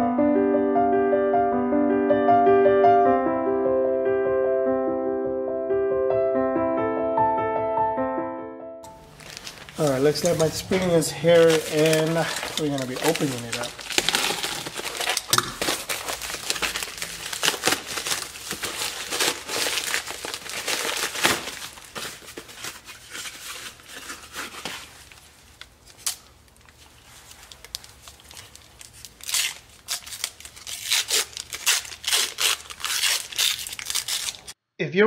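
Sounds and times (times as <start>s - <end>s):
envelope and cardboard crinkling: 8.9s - 34.6s.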